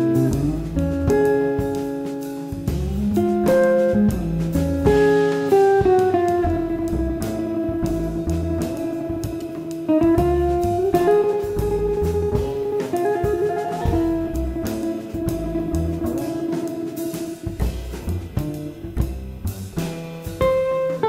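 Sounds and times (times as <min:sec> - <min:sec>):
instrumental guitar music: 0:00.0 - 0:21.0.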